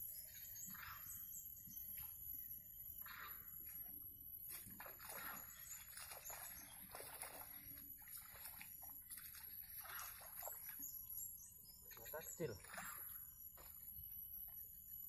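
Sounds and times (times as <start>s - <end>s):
faint water splashing and sloshing: 0.0s - 15.0s.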